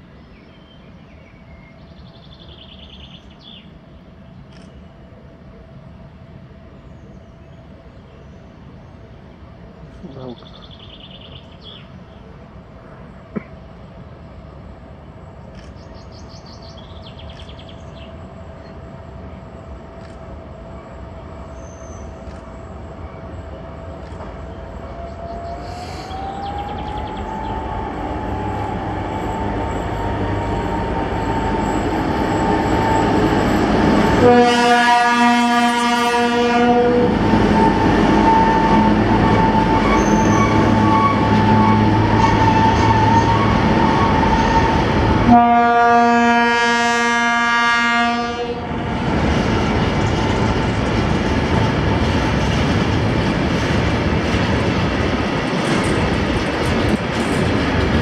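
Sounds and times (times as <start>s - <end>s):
diesel locomotive engine: 0.0s - 58.0s
wagons rumbling past: 26.2s - 45.3s
train horn blast: 34.0s - 48.8s.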